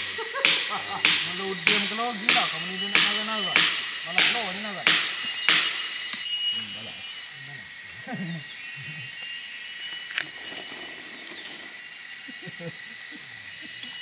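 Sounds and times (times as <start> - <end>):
insects droning: 0.0 - 14.0
sharp click: 0.4 - 6.3.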